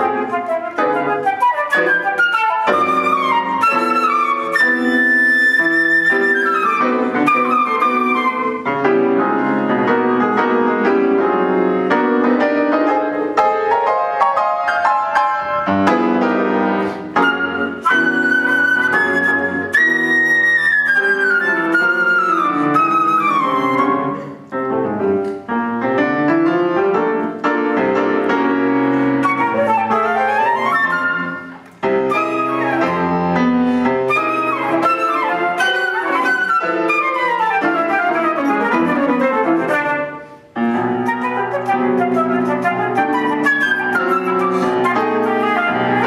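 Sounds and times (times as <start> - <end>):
flute: 0.0 - 11.2, 16.8 - 24.7, 28.9 - 46.0
piano: 0.0 - 46.0.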